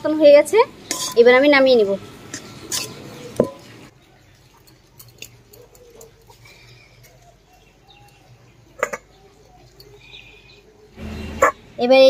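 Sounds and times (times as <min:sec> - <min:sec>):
metal spatula scraping a pan: 0:00.8 - 0:01.4, 0:02.4 - 0:03.1.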